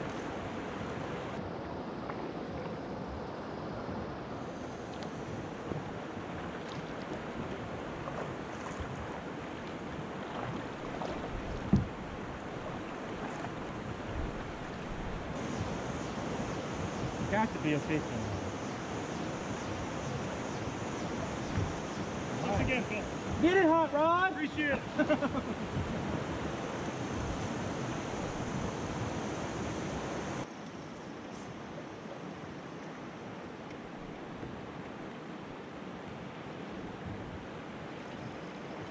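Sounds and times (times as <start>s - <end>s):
river water rushing and splashing: 0.0s - 38.9s
dull thump: 11.7s - 12.0s, 21.5s - 21.8s.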